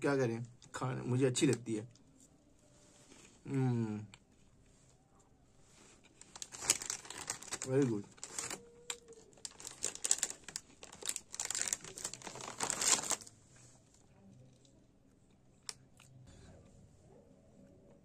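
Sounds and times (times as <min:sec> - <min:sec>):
plastic packet crinkling: 0:06.1 - 0:13.3.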